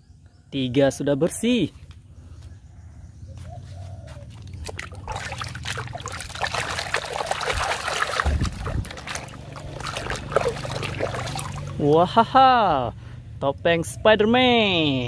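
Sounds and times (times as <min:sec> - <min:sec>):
hand splashing water in basin: 0:04.6 - 0:12.0.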